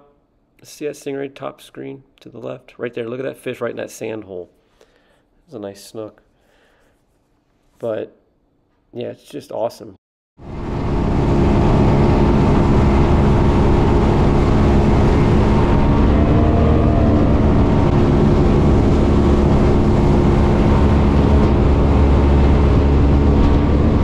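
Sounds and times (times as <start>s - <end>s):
outboard engine running: 10.4s - 24.0s
water rushing: 10.6s - 24.0s.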